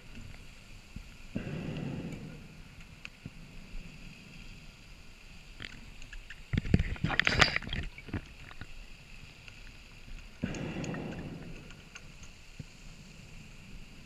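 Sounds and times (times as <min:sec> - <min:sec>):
exhaled bubbles crackling underwater: 0:00.9 - 0:14.0
breath through a regulator: 0:10.4 - 0:11.9.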